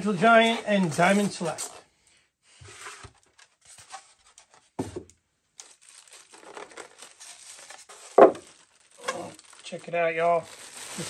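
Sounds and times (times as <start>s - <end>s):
plastic wrap crinkling: 0.0s - 1.8s, 5.6s - 11.0s.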